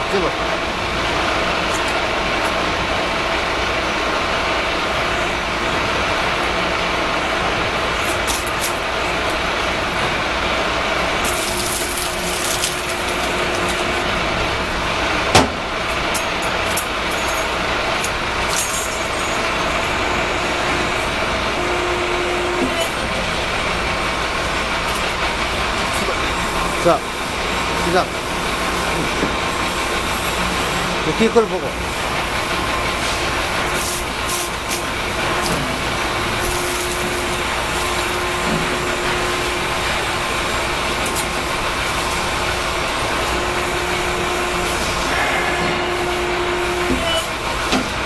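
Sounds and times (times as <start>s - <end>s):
hydraulic power unit running: 0.0s - 48.0s
metal parts clinking: 11.2s - 14.0s, 16.2s - 19.8s
steady higher tone: 18.5s - 31.6s, 35.7s - 47.2s.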